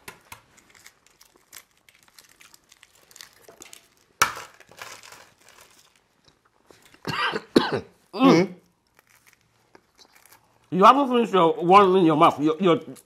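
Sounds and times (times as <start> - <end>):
eggshells cracking and crinkling: 0.0 - 7.1, 8.6 - 13.0.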